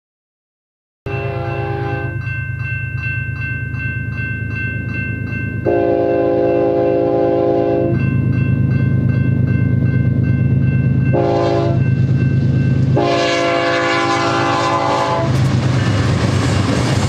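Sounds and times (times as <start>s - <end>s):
locomotive horn: 1.1s - 2.2s, 5.6s - 8.0s, 11.1s - 11.8s, 12.9s - 15.4s
crossing warning bell ringing: 1.1s - 16.7s.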